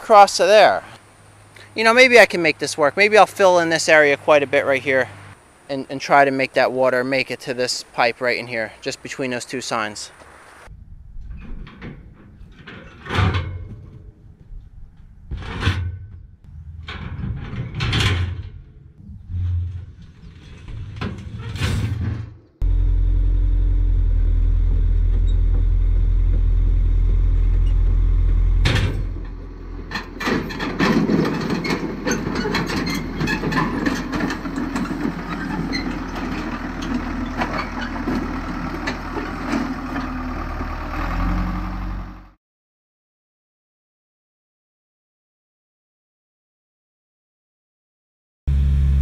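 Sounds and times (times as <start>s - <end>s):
steel ramps clanking: 11.2s - 14.2s, 15.3s - 22.6s, 27.3s - 40.1s
bulldozer diesel engine droning: 22.2s - 42.4s, 48.5s - 49.0s
steel tracks clattering: 28.6s - 39.7s.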